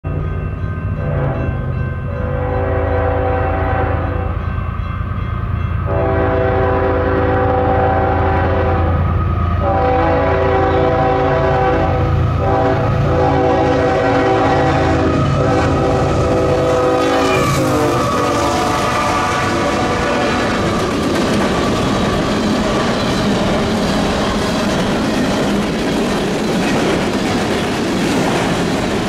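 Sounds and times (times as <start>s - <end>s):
low rumble of train: 0.0s - 29.0s
locomotive air horn blasts: 1.0s - 4.4s, 5.9s - 20.6s.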